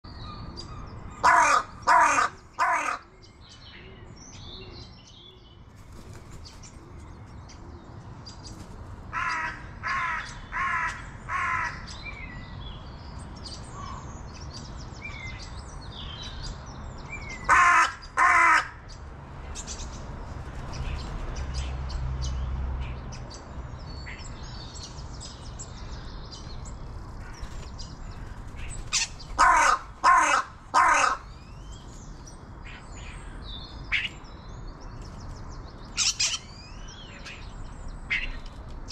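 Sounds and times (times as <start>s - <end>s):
small birds chirping: 0.0s - 38.9s
crow cawing: 1.2s - 3.1s, 9.1s - 11.9s, 17.5s - 18.8s, 29.0s - 31.3s.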